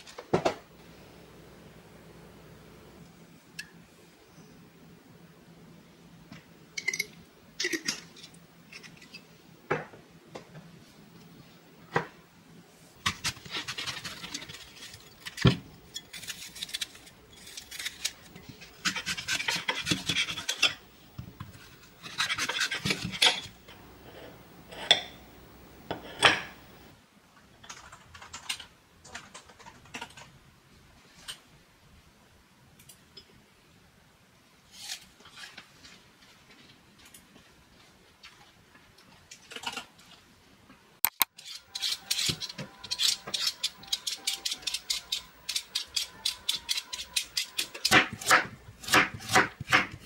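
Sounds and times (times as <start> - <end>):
utensils clinking on dishes: 41.5 - 48.0.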